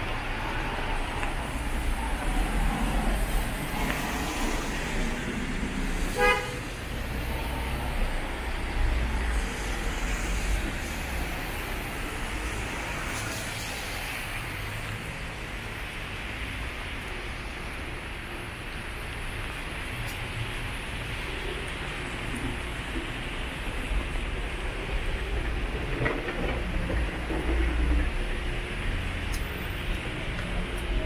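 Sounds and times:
tyres on wet asphalt: 0.0 - 31.0
vehicle engines passing: 0.0 - 31.0
short vehicle horn toot: 6.2 - 6.6.

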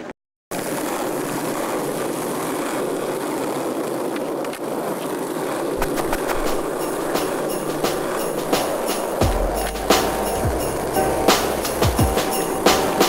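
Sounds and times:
skateboard clacks: 0.0 - 13.0
skateboard wheels rolling on asphalt: 0.0 - 13.0.

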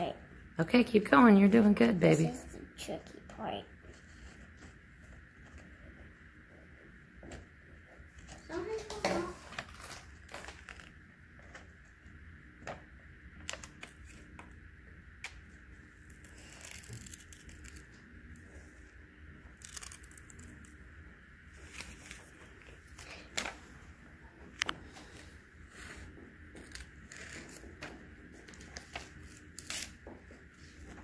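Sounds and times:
paper rustling: 8.2 - 11.7.

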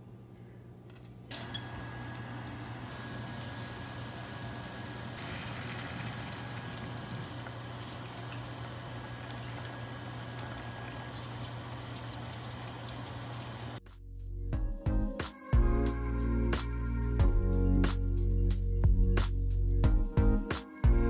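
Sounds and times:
stew cooking hiss: 2.7 - 13.8
liquid pouring: 3.0 - 13.1.

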